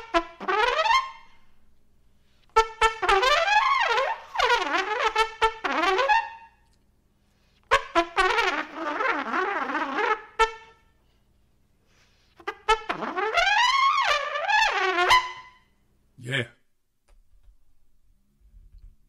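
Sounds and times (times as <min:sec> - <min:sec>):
trumpet playing jazz phrases: 0:00.0 - 0:01.7, 0:02.4 - 0:06.6, 0:07.6 - 0:10.9, 0:12.3 - 0:15.6.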